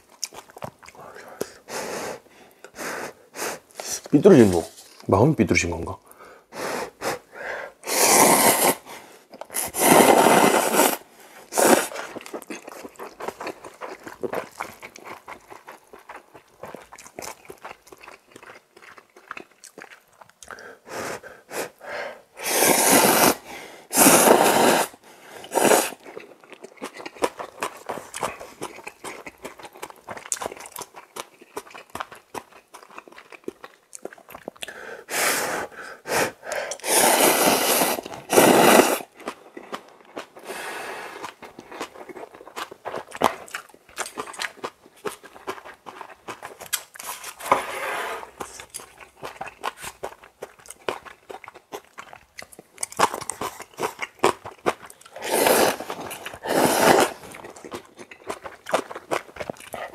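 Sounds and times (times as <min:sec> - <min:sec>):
chewing: 0:00.0 - 0:02.8, 0:09.3 - 0:21.8, 0:24.9 - 0:47.5, 0:48.3 - 0:59.9
slurping noodles: 0:06.5 - 0:16.9, 0:20.5 - 0:29.3, 0:34.6 - 0:39.3, 0:45.1 - 0:50.2, 0:53.0 - 0:59.9.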